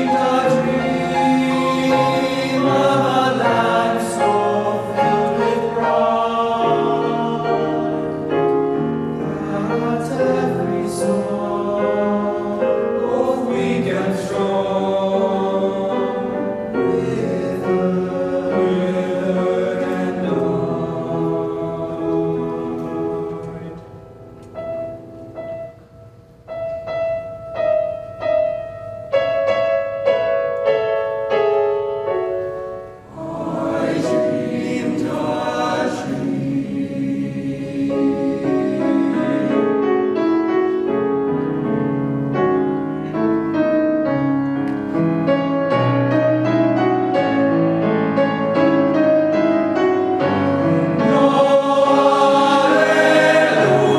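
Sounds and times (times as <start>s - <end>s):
boys' choir singing: 0.0s - 23.8s, 33.1s - 40.3s, 50.2s - 53.9s
grand piano accompaniment: 0.0s - 53.9s.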